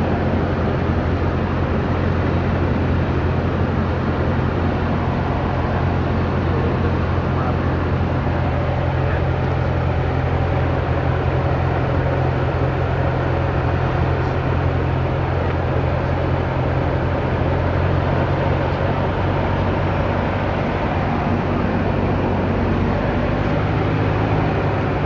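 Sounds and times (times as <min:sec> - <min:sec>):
airplane engine and propeller hum: 0:00.0 - 0:25.0.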